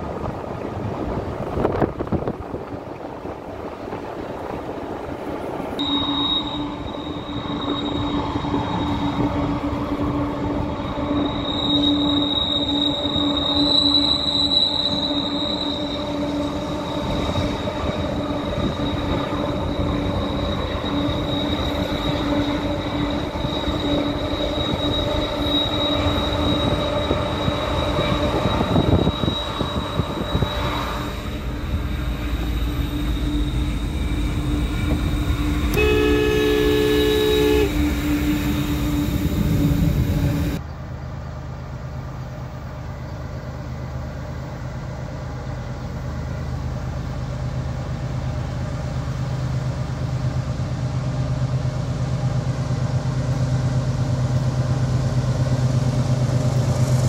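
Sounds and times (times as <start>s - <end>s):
road and wind rumble: 0.0s - 5.8s, 26.2s - 57.0s
train wheels squealing: 5.8s - 41.1s.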